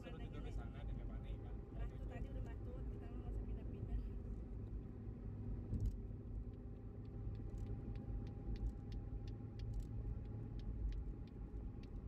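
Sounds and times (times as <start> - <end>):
road and engine rumble: 0.0 - 12.0
faint clicks: 6.5 - 12.0.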